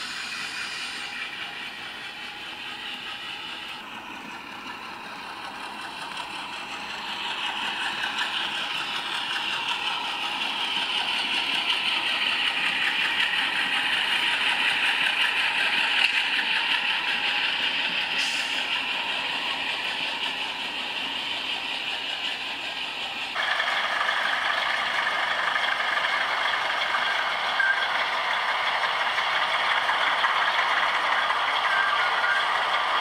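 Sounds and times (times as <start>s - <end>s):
model locomotive engine sound: 0.0s - 33.0s
wheels rattling over track: 0.7s - 33.0s.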